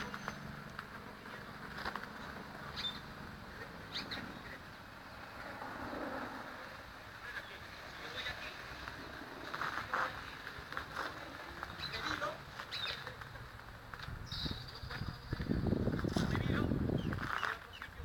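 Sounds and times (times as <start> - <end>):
bird chirps: 0.0 - 0.6, 2.2 - 3.2, 3.8 - 5.3, 11.6 - 13.2, 14.2 - 15.6
distant traffic hum: 0.0 - 18.0.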